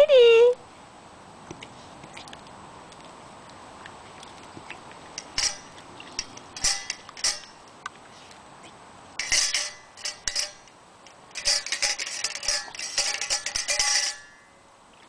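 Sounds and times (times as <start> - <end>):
metal dog bowls clinking: 5.1 - 7.6, 9.2 - 10.7, 11.3 - 14.6.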